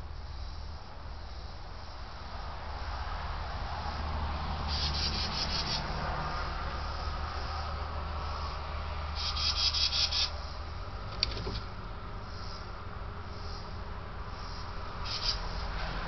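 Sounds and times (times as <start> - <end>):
insect pulsed buzz: 0.0 - 16.0
steady low hum: 0.0 - 16.0
sharp click: 11.1 - 11.7.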